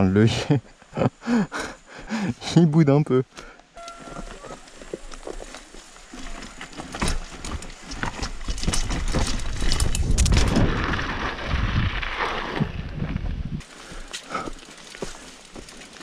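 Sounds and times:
mountain bike rattling over rocks: 0:03.9 - 0:16.0.

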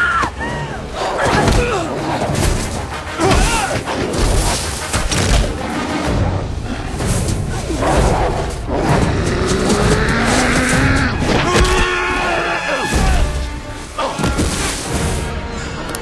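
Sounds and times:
film soundtrack music: 0:00.0 - 0:16.0
voices shouting: 0:09.9 - 0:13.4.

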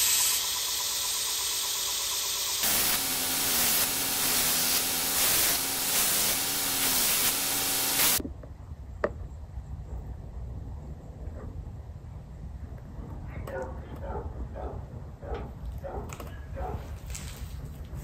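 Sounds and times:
belt grinder motor hum: 0:02.4 - 0:08.2
blade grinding on belt: 0:02.6 - 0:08.2.

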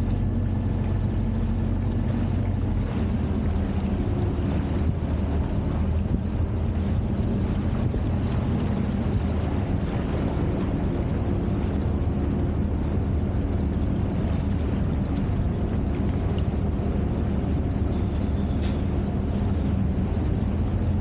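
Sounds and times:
motorboat engine humming: 0:00.0 - 0:21.0
water churning: 0:00.0 - 0:21.0.

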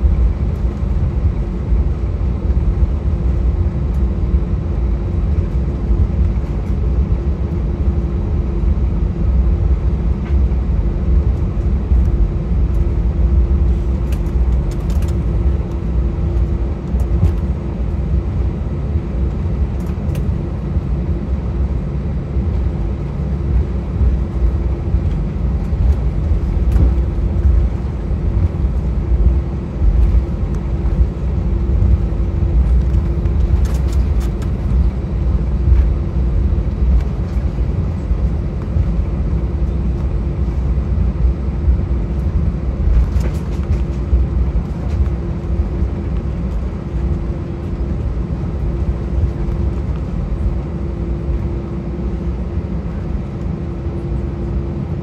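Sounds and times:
jet engines idling rumble: 0:00.0 - 0:55.0
steady hum: 0:00.0 - 0:55.0.

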